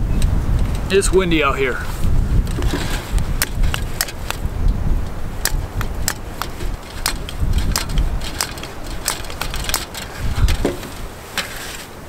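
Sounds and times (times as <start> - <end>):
wind buffeting microphone: 0.0 - 11.4
hand pump clicking: 2.5 - 11.1.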